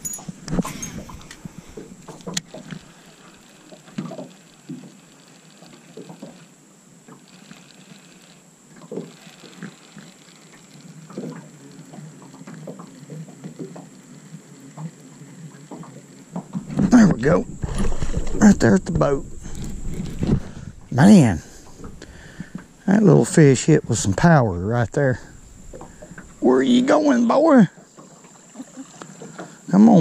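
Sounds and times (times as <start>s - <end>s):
water lapping: 0.0s - 30.0s
fishing reel being cranked: 2.2s - 11.5s.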